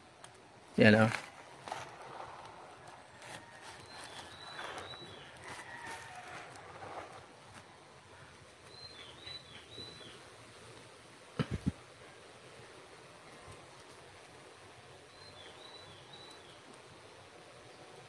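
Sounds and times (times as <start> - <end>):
bird chirping faintly: 1.9 - 7.1, 7.7 - 10.8, 13.2 - 18.0.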